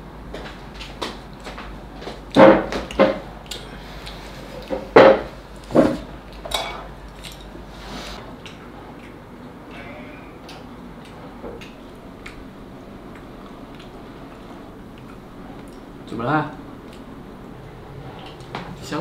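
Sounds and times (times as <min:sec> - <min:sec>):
chopsticks clinking on bowls: 0:06.5 - 0:07.5.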